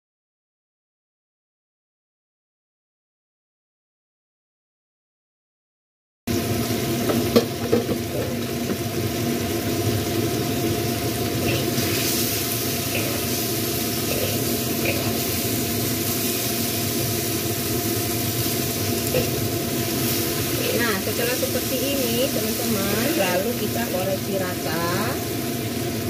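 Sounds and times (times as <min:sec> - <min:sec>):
food sizzling in a wok: 0:06.3 - 0:26.0.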